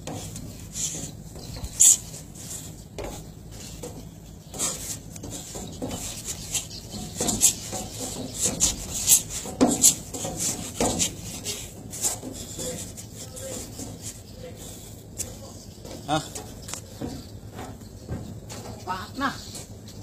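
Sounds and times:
sharp hissy breaths: 0.2s - 3.6s.

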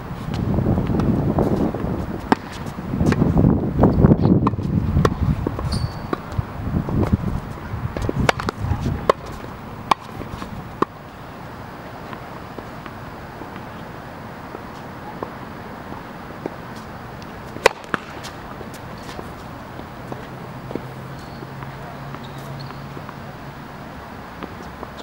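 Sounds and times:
tennis ball bouncing on court: 0.3s - 3.3s, 4.2s - 11.0s, 16.4s - 23.3s, 24.4s - 25.0s
tennis ball struck by racket: 2.2s - 3.3s, 4.4s - 11.0s, 16.4s - 23.2s.

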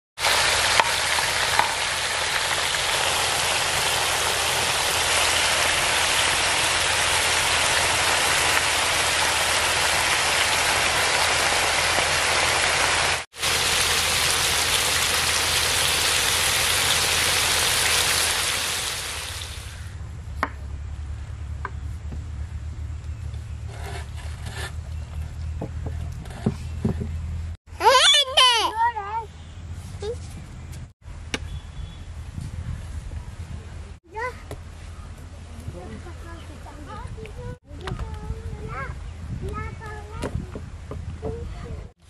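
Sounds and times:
patties sizzling on griddle: 0.2s - 19.8s.

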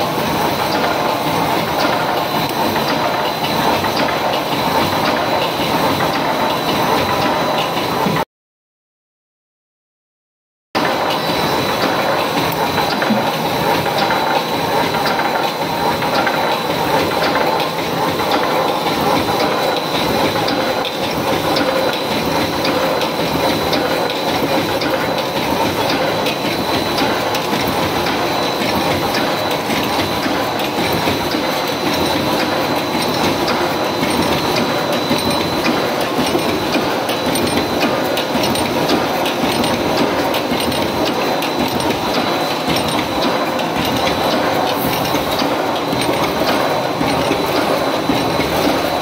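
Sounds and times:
high machine whine: 10.8s - 49.0s
welding machine clattering: 25.9s - 49.0s.

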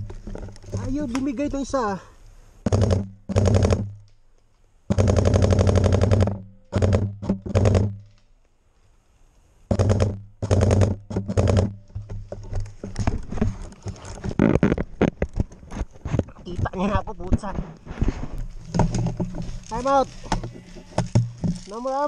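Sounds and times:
gear rustling: 18.2s - 22.0s.

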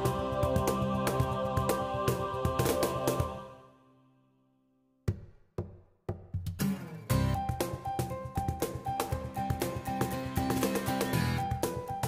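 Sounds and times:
music with held notes and quick beat: 5.1s - 12.0s.

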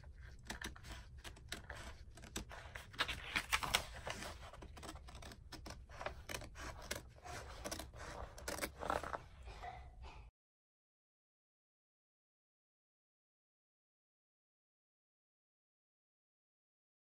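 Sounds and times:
scissors snipping paper: 0.0s - 9.2s
paper rustling: 0.0s - 9.4s.

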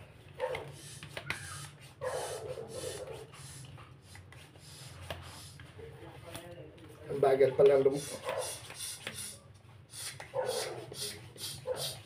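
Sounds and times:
hand pump puffing air: 0.6s - 5.6s, 7.9s - 12.0s
air hissing into cushion: 8.0s - 12.0s.

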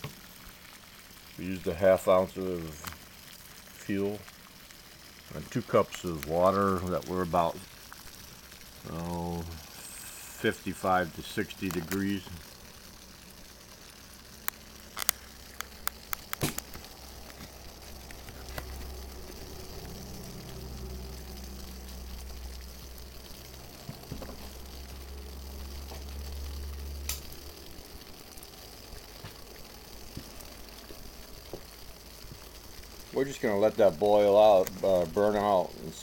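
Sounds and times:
water hissing as it heats: 0.0s - 36.0s
sharp clicks: 14.4s - 16.9s, 27.0s - 27.4s.

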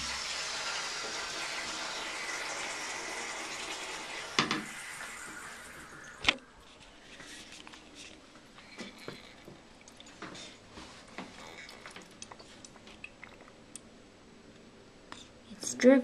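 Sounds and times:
soft hiss: 2.5s - 16.0s
toilet tank ticks and drips: 8.6s - 13.9s.

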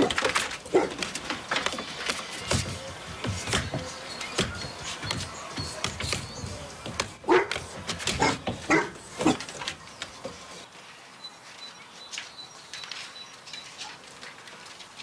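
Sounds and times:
dog barking: 0.7s - 1.0s, 7.2s - 9.4s.

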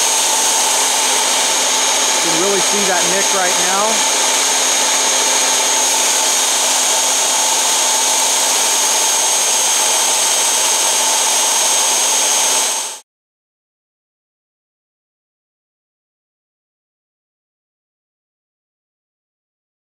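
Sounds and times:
belt sander whining: 0.0s - 13.0s.

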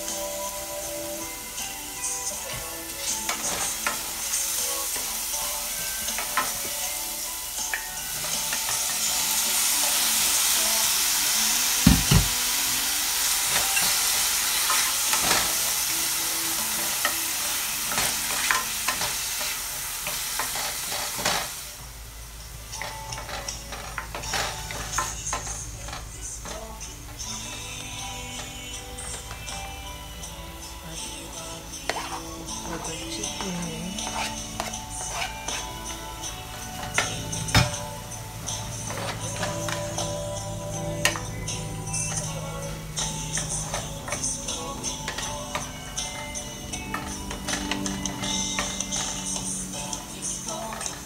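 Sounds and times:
vegetables sizzling in hot oil: 0.0s - 29.6s, 31.2s - 45.7s
wooden spoon scraping a pot: 31.8s - 32.4s, 33.9s - 35.8s.

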